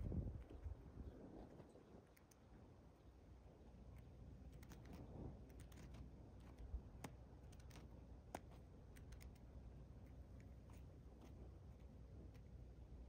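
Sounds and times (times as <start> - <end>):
bird bill clicking on ground: 3.9 - 12.6.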